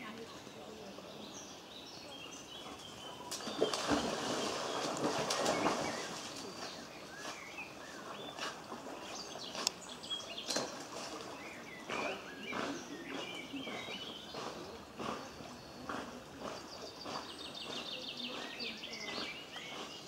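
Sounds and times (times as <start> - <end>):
small birds chirping: 0.0 - 20.0
dog splashing in water: 2.7 - 7.2.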